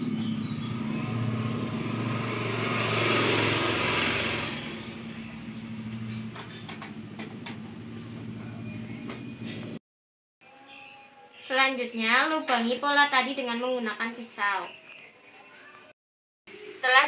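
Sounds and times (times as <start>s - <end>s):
motor vehicle passing: 0.0s - 8.6s.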